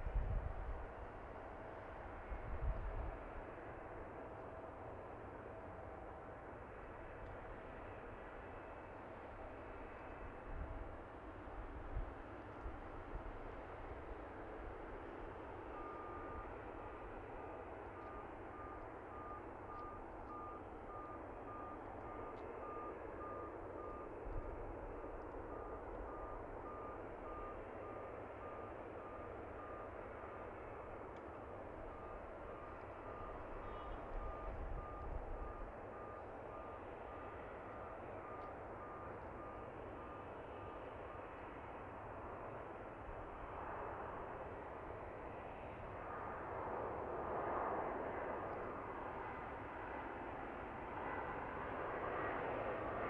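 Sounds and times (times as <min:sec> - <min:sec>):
airport ground noise hum: 0:00.0 - 0:53.0
vehicle reversing alarm beeping: 0:13.6 - 0:47.0.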